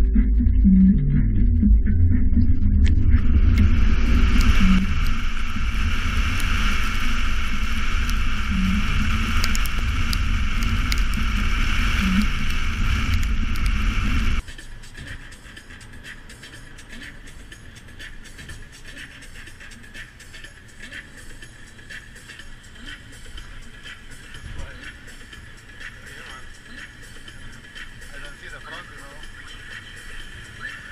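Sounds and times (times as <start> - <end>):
wind rumble on microphone: 0.0 - 14.4
tyres hissing on wet road: 4.0 - 14.4.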